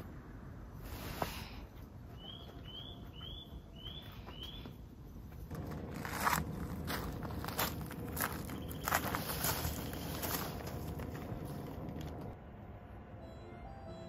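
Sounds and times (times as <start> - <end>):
bird chirping: 2.1 - 4.8, 8.2 - 10.5
crunching footsteps: 2.1 - 12.4.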